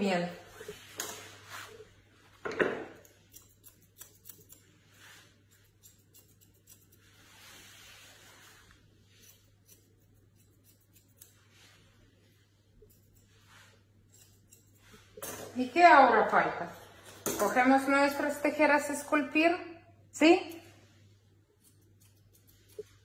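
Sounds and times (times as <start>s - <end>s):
scissors snipping hair: 2.9s - 4.7s, 5.4s - 7.2s, 9.1s - 11.6s, 12.8s - 15.6s, 21.6s - 23.0s.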